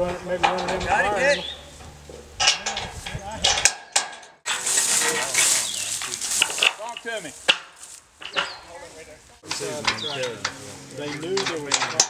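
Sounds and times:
indistinct voices murmuring: 0.0s - 3.8s, 4.5s - 12.0s
rustling and scuffing: 4.5s - 12.0s.

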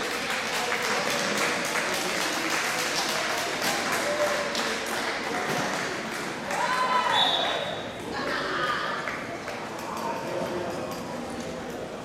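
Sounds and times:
claps and knocks: 0.0s - 6.6s
hubbub of voices: 0.0s - 12.0s.

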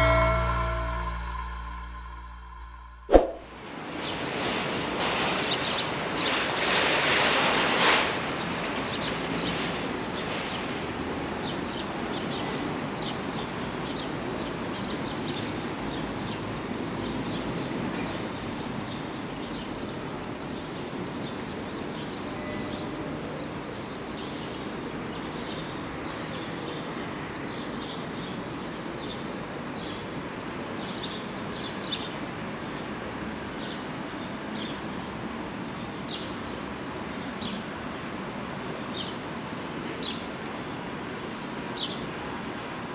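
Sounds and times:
rush of noise: 0.0s - 3.5s.

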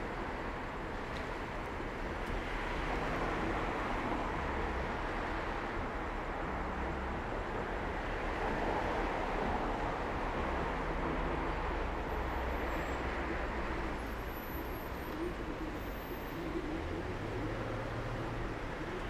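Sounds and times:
car engines humming: 0.0s - 19.0s.

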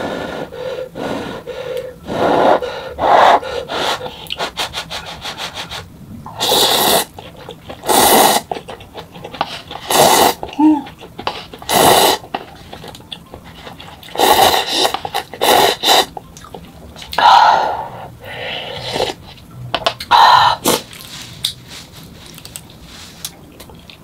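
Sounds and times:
noodles being slurped: 3.9s - 16.7s
wet chewing clicks: 7.1s - 17.2s, 22.2s - 24.0s.

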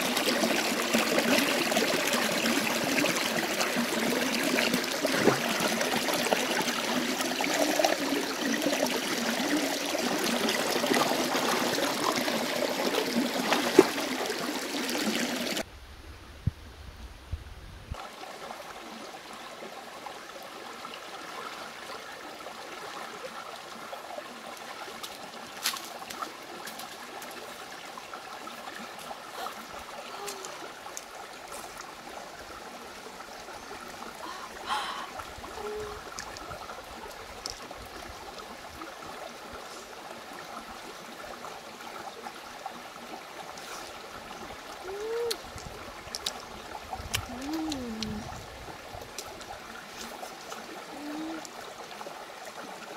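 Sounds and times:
stream babbling over rocks: 0.0s - 15.7s, 18.0s - 52.9s.

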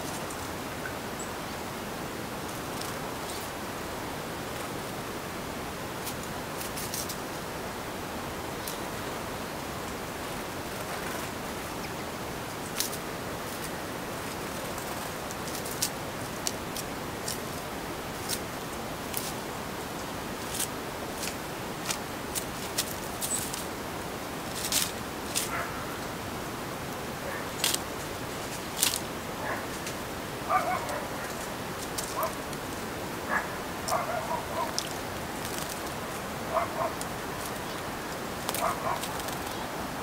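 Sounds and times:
steady hiss: 0.0s - 40.0s
birds splashing ticks and flicks: 9.9s - 40.0s.

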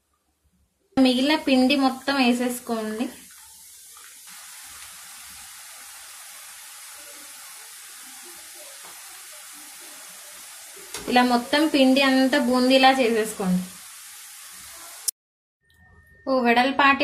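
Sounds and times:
batter sizzling in hot oil: 1.0s - 15.2s.

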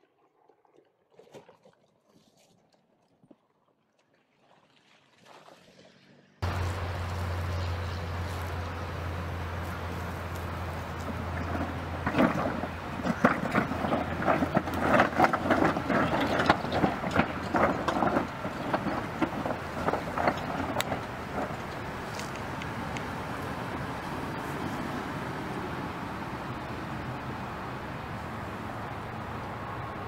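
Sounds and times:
vehicle engine drone: 5.8s - 30.0s
rocks crunching under tyres: 6.4s - 25.2s.

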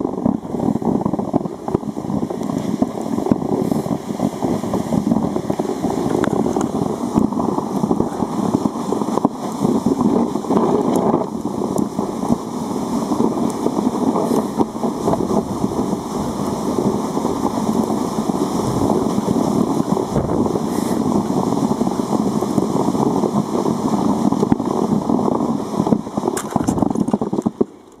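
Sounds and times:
sledge scraping over snow: 0.0s - 27.9s
wind buffeting microphone: 0.0s - 28.0s.

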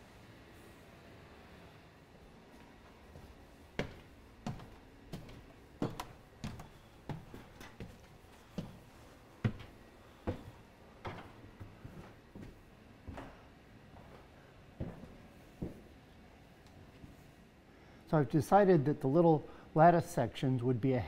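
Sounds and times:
footsteps climbing stairs: 2.6s - 15.9s.

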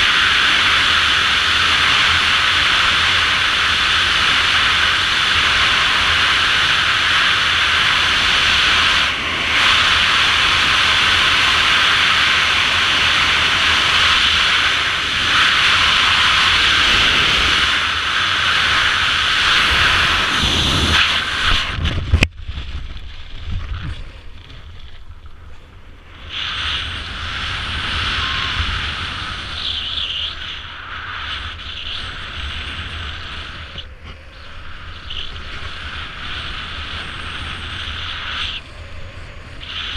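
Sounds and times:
strong wind rushing: 0.0s - 39.9s.

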